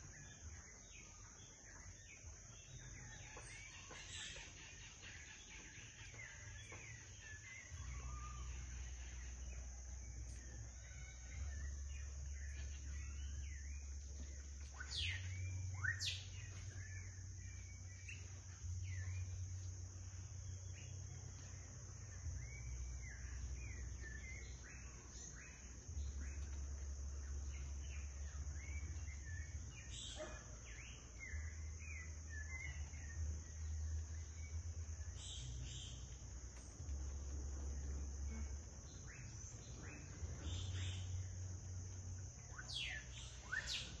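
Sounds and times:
low rumble: 30.7 - 44.0
high-pitched insect buzz: 37.0 - 44.0.

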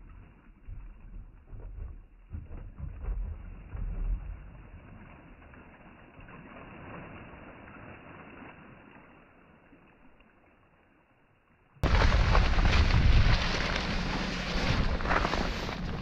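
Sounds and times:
water gushing and sloshing: 0.0 - 10.7, 11.8 - 16.0
wind buffeting microphone: 11.8 - 16.0.

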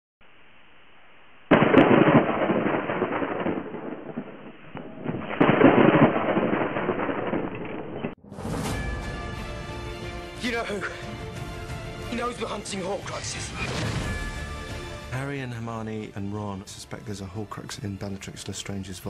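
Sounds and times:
fiery crackling bursts: 0.2 - 8.2.

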